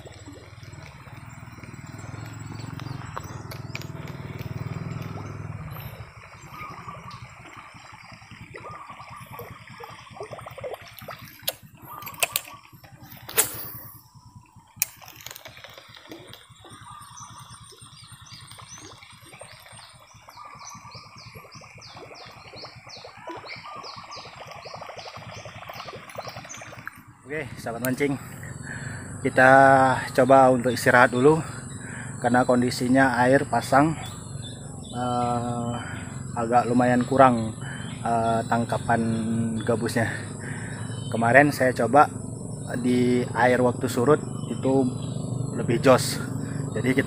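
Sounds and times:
fishing reel clicks and knocks: 0:11.4 - 0:13.7, 0:14.8 - 0:16.4.

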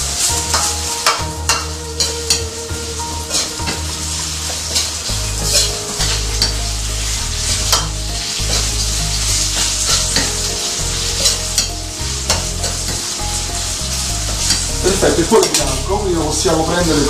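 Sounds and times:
chicken sizzling in hot oil: 0:00.0 - 0:17.0.

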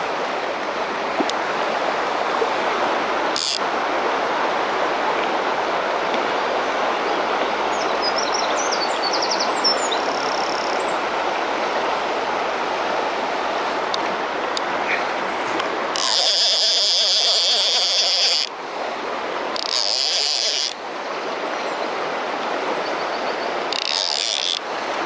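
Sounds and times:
river current rushing: 0:00.0 - 0:25.0.

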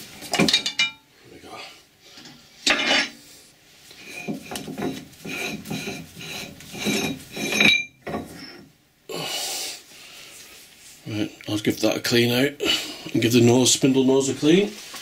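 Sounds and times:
metal-on-metal scraping: 0:02.2 - 0:03.2, 0:04.0 - 0:08.7.

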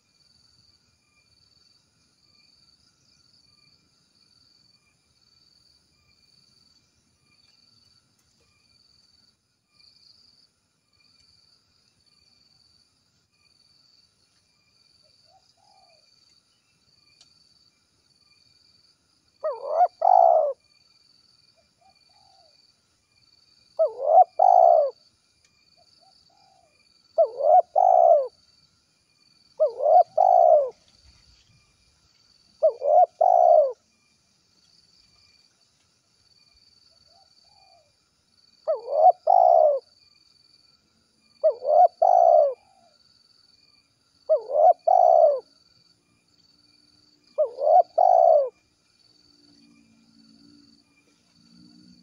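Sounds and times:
dove cooing: 0:19.4 - 0:20.6, 0:23.8 - 0:25.0, 0:26.3 - 0:28.4, 0:29.6 - 0:30.8, 0:32.6 - 0:33.8, 0:38.7 - 0:39.9, 0:41.4 - 0:42.9, 0:44.3 - 0:45.5, 0:47.4 - 0:48.6.

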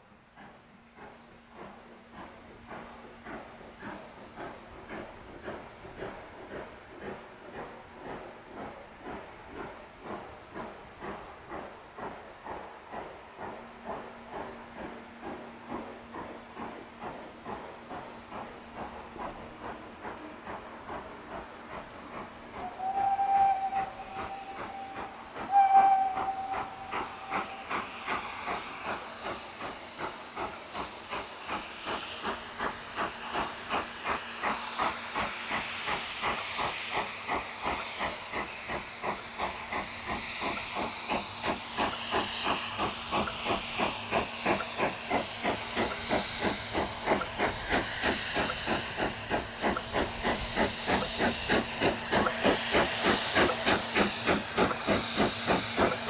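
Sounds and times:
steam locomotive exhaust chuffing: 0:00.0 - 0:56.0.

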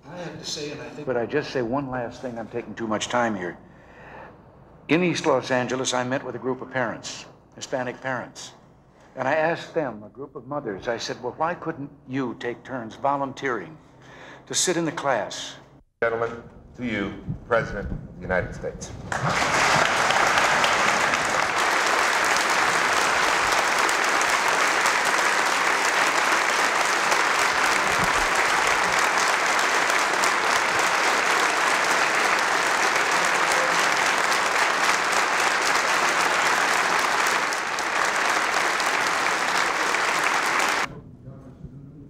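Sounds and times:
crowd applauding: 0:19.0 - 0:40.9.

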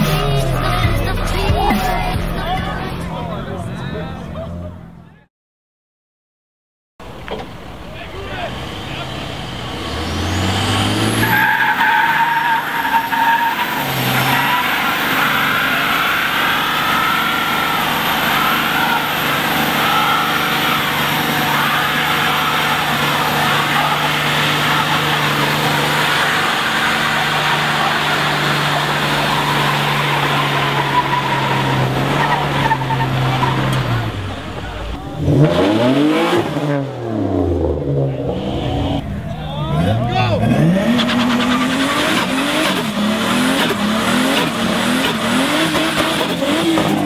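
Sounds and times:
truck engine revving: 0:00.0 - 0:05.3, 0:07.0 - 0:47.0
tyres squealing: 0:08.0 - 0:36.7.

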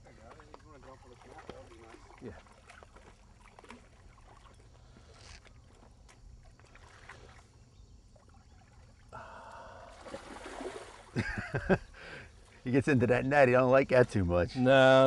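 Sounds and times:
water sloshing around net: 0:00.0 - 0:09.2, 0:09.8 - 0:11.2
fish splashing: 0:00.2 - 0:11.2.

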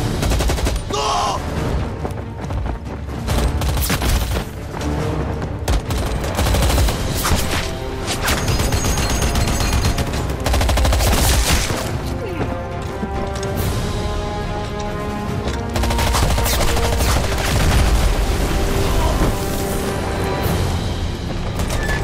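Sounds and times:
film music score: 0:00.0 - 0:22.0.

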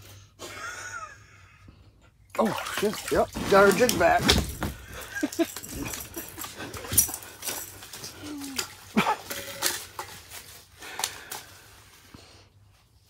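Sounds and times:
gear knocking and rustling: 0:03.3 - 0:11.6.

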